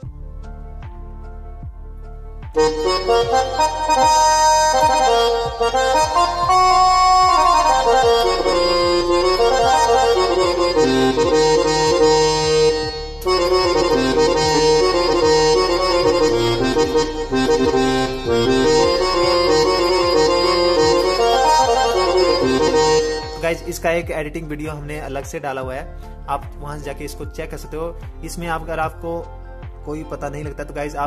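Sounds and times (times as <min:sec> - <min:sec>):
keyboard reedy melody: 0:00.0 - 0:24.7.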